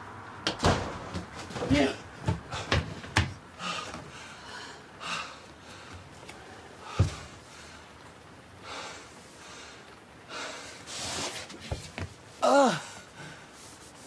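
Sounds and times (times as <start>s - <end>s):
man breathing hard: 3.5s - 8.0s, 8.6s - 10.9s.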